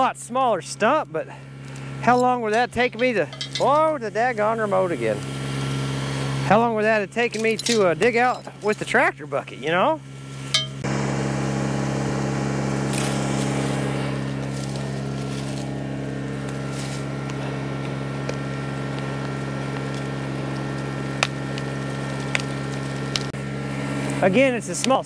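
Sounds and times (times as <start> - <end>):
tractor diesel engine running: 0.0 - 25.0.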